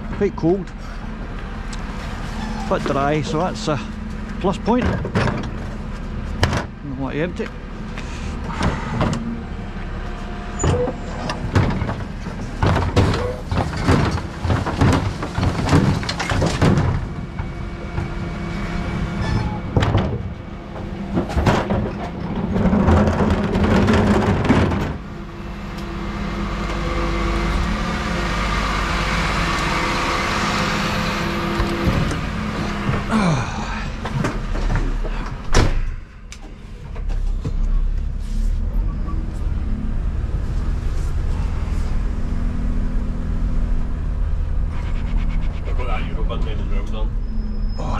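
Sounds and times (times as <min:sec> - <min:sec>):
diesel truck engine running: 0:00.0 - 0:47.9
steady mechanical noise: 0:00.0 - 0:47.9
bin lift clanks and bangs: 0:04.6 - 0:05.7, 0:10.6 - 0:25.6, 0:31.2 - 0:36.1.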